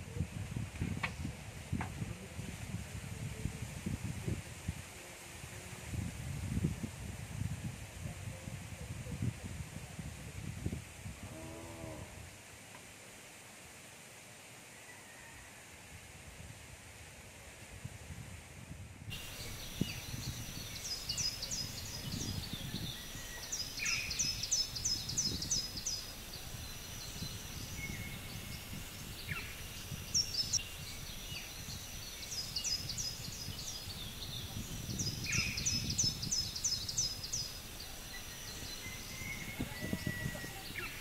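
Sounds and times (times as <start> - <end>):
birds chirping: 19.1 - 41.0
lower falling bird calls: 19.1 - 41.0.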